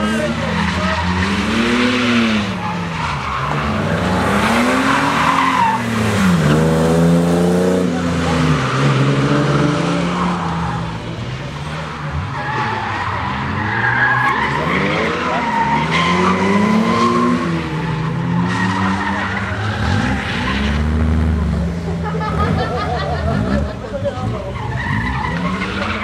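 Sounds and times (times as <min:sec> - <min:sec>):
car engine revving hard: 0:00.0 - 0:10.6, 0:14.2 - 0:21.6
tyres screeching: 0:00.1 - 0:06.8.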